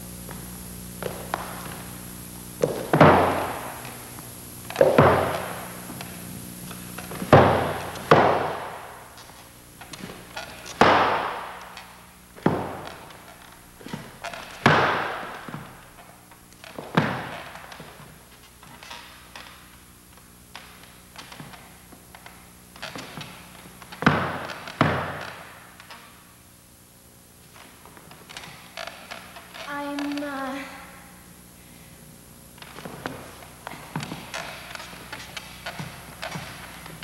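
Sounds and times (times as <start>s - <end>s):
low steady hum: 0.0s - 37.0s
high heels on hardwood floor: 0.3s - 1.9s, 4.7s - 6.2s, 7.0s - 18.9s.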